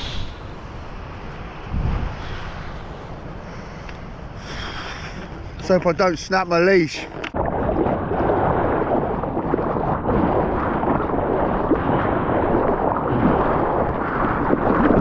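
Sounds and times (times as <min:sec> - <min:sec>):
wind buffeting microphone: 0:00.0 - 0:04.4, 0:07.0 - 0:15.0
surf rushing: 0:04.2 - 0:15.0.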